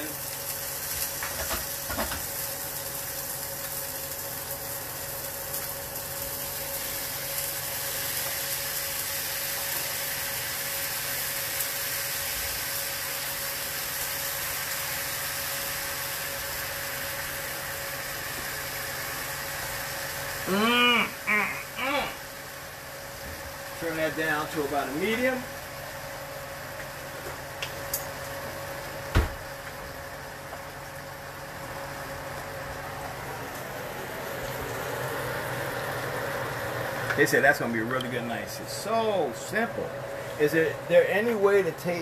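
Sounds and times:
fish sizzling in a frying pan: 0:00.0 - 0:33.2
thin steady hum: 0:15.7 - 0:42.0.

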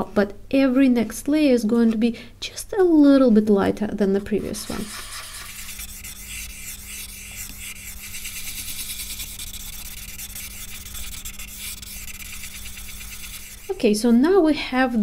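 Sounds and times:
blending stump rubbing on paper: 0:04.4 - 0:14.5.

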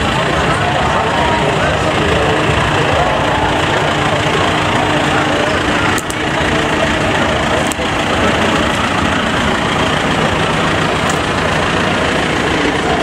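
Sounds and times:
tractor diesel engine running: 0:00.0 - 0:13.0.

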